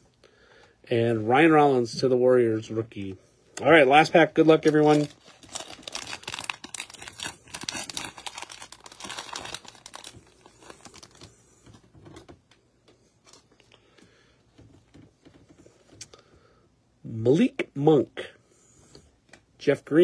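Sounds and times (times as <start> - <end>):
wrapper tearing and crinkling: 4.4 - 11.3.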